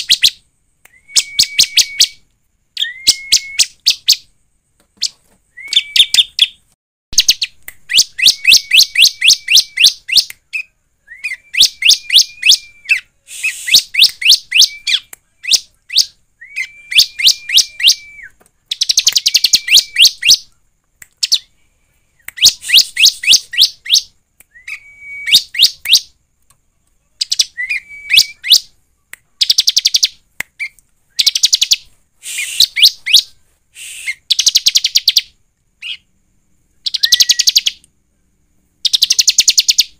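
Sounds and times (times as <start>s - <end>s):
bird high whistle: 0.0s - 2.2s, 2.8s - 4.2s, 5.0s - 6.6s, 7.2s - 20.5s, 22.2s - 26.1s, 27.2s - 28.7s, 29.4s - 36.1s, 36.8s - 37.8s.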